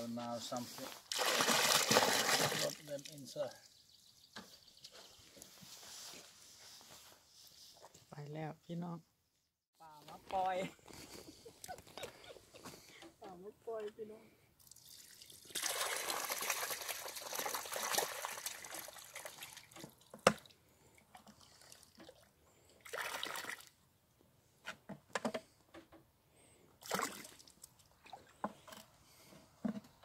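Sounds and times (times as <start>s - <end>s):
water splashing from bucket: 1.0s - 3.2s, 14.6s - 20.5s, 21.2s - 23.7s, 26.8s - 28.4s.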